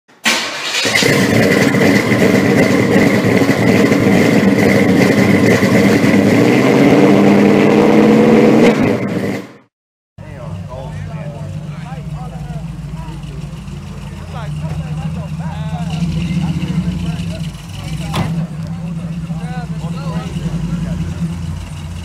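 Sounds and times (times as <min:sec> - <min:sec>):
car engine running: 0:01.0 - 0:06.6, 0:10.2 - 0:22.0.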